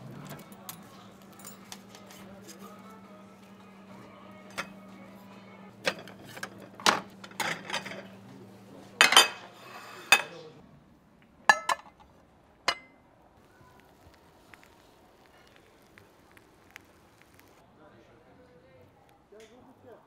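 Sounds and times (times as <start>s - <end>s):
tongs and ceramic plates clinking: 4.4s - 4.9s, 5.8s - 8.2s, 9.0s - 10.4s, 11.5s - 12.0s.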